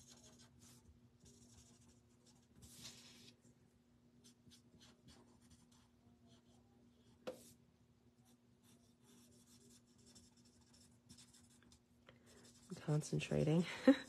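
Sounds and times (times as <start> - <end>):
marker scratching on card: 0.0 - 3.3, 8.6 - 11.7.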